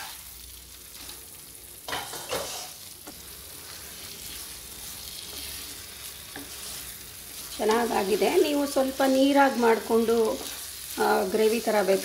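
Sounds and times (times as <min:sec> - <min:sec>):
curry sizzling in a pan: 0:00.0 - 0:12.0
wooden spatula scraping a pan: 0:01.9 - 0:10.8.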